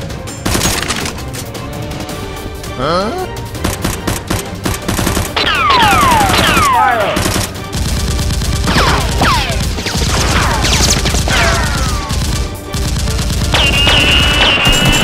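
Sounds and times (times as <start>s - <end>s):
automatic gunfire: 3.6s - 15.0s.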